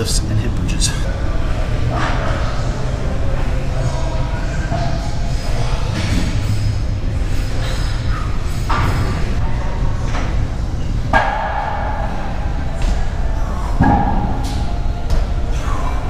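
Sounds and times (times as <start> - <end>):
steady low rumble: 0.0 - 7.3.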